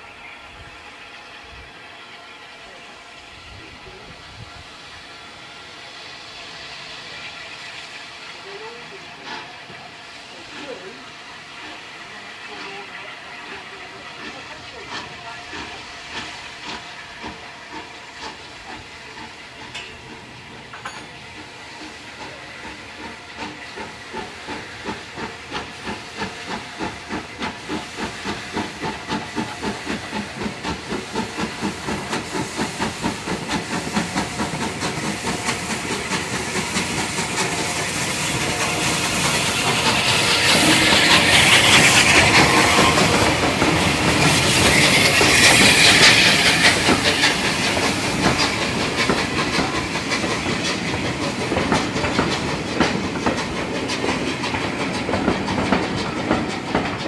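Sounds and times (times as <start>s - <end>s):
loud hissing steam: 0.0s - 57.0s
steam locomotive chuffing: 0.0s - 57.0s.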